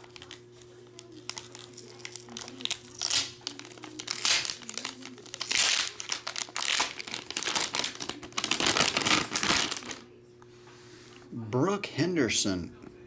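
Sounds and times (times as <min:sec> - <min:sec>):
foil wrapper crinkling: 0:00.0 - 0:10.1.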